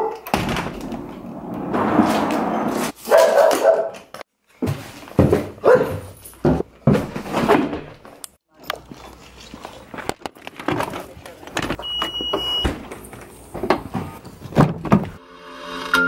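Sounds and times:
dog barking: 0:00.0 - 0:00.2, 0:03.0 - 0:04.1, 0:05.6 - 0:06.1.

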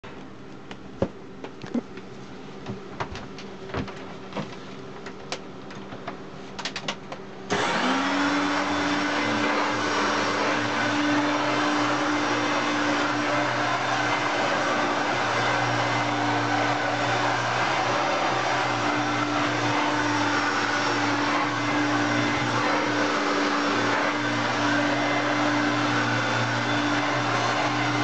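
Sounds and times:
vacuum cleaner running: 0:07.5 - 0:28.0.

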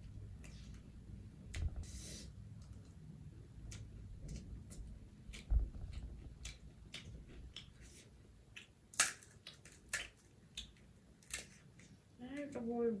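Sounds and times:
crisp crunching chewing: 0:03.7 - 0:12.0
low thump: 0:05.5 - 0:06.2
hollow shells cracking: 0:08.9 - 0:11.5.

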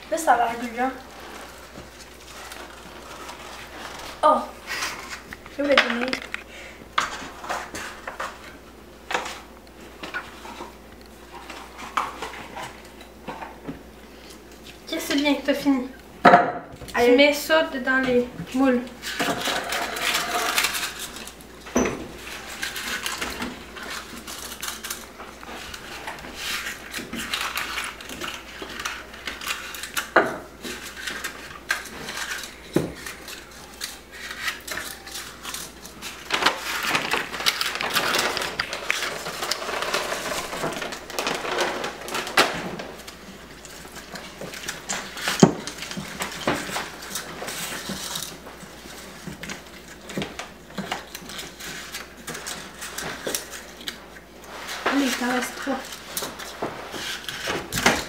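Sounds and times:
paper liners rustling and crinkling: 0:00.2 - 0:06.4, 0:18.6 - 0:58.0.

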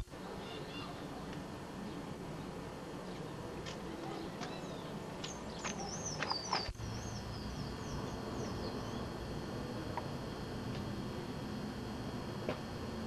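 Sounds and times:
steady low background noise: 0:00.0 - 0:13.0
small birds chirping: 0:01.8 - 0:10.0.

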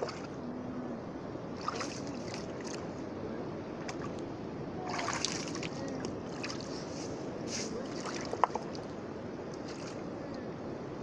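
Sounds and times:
hands sloshing in seawater: 0:01.6 - 0:02.8, 0:04.9 - 0:08.7.

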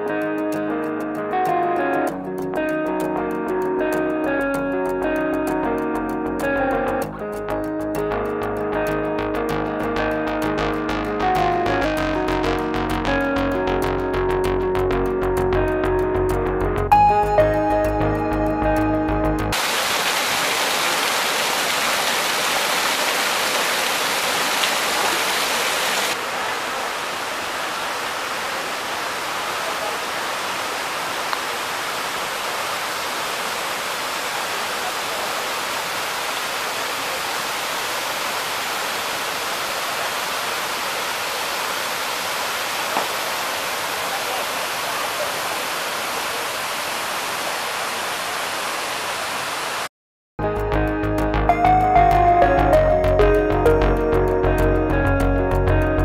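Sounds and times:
waterfall rushing: 0:19.5 - 0:49.9.

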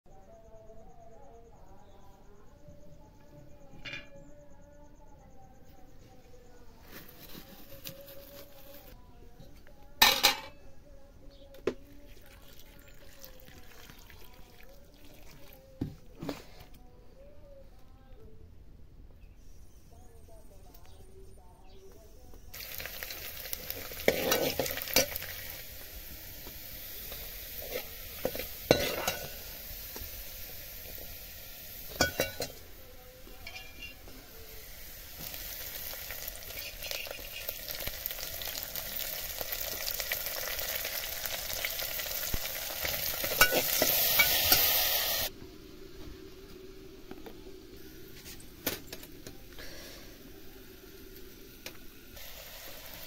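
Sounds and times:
food sizzling in oil: 0:22.5 - 0:53.0
spoon scraping and knocking pan: 0:27.1 - 0:29.4, 0:43.2 - 0:44.8.

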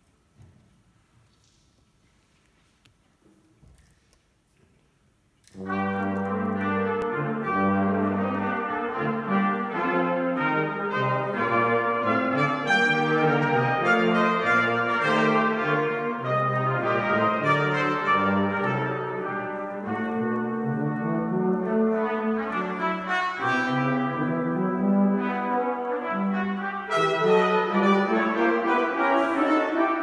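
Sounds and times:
brass quartet playing chords: 0:05.5 - 0:30.0.

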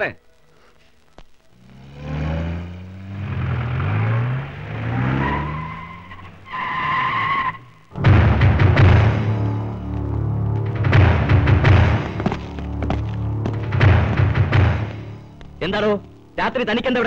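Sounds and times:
vehicle engines revving: 0:01.5 - 0:07.8
tyres squealing: 0:02.2 - 0:07.9
loud low pounding: 0:07.9 - 0:16.3.

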